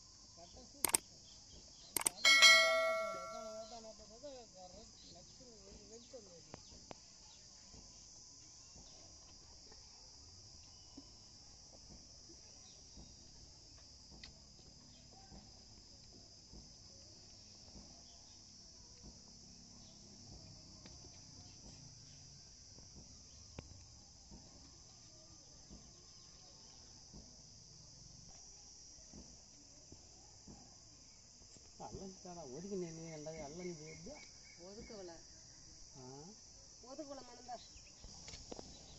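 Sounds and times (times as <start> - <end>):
crickets chirring: 0.0 - 38.9
soft clicks: 2.0 - 2.2.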